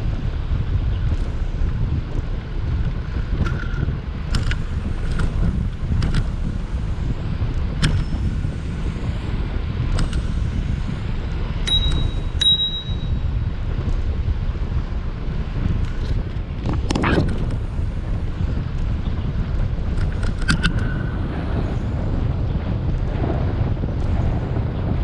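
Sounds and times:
wind on microphone: 0.0 - 25.0
bicycle metallic clicks and rattles: 1.0 - 14.5, 15.5 - 21.1
short ringing pings: 11.7 - 13.3.

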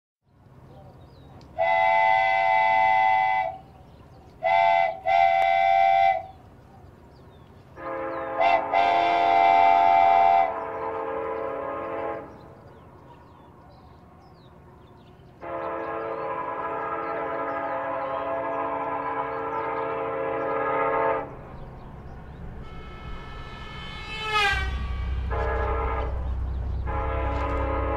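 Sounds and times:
low multi-tone horn: 1.6 - 3.8, 4.4 - 6.4, 7.8 - 12.6, 15.3 - 27.9
train horn blasts: 1.6 - 3.8, 4.4 - 6.4, 7.7 - 12.8, 15.2 - 27.9
steady low hum: 20.4 - 27.9.

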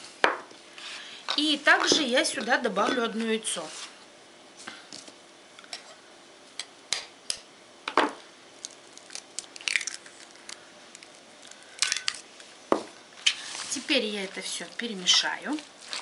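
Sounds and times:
egg shell crackling: 8.6 - 12.3.

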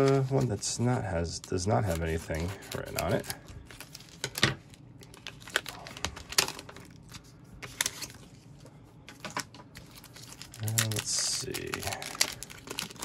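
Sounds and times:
foil wrapper crinkling and crackling: 0.0 - 8.4, 9.2 - 13.0.

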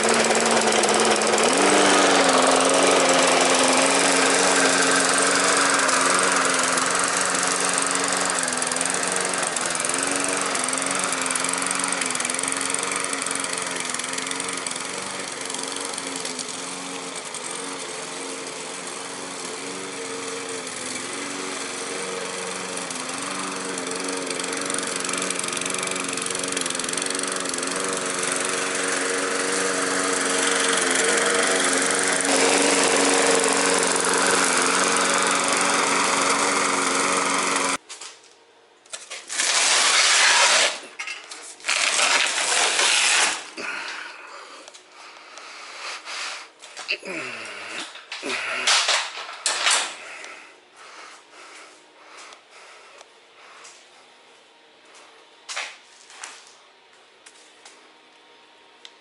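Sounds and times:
lawn mower running: 0.0 - 38.0, 38.9 - 44.6, 45.4 - 52.8
loud noisy bursts: 28.6 - 37.8.

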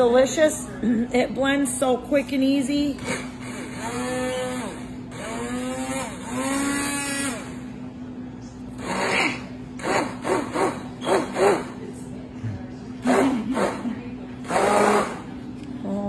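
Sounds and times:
blender blade working thick mix: 3.0 - 7.7, 8.8 - 11.8, 13.0 - 15.4
immersion blender motor humming: 3.1 - 7.6, 14.4 - 15.3.

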